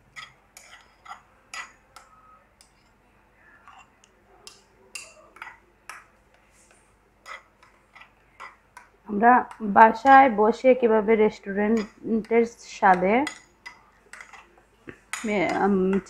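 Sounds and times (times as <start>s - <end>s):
spoon scraping a ceramic plate: 0.1s - 3.0s, 3.6s - 8.9s, 11.5s - 16.0s.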